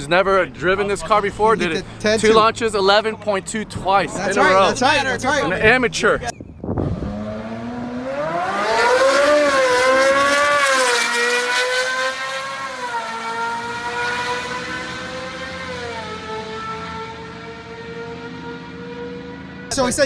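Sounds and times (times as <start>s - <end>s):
sports car engine accelerating: 6.6s - 20.0s.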